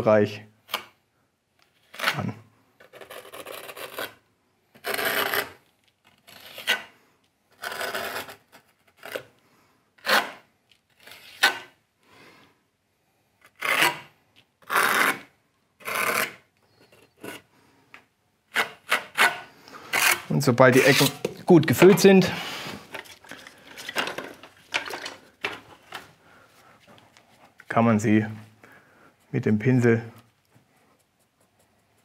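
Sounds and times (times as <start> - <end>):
trowel scraping compound on brick: 7.6 - 9.2, 13.5 - 17.5, 18.5 - 24.4.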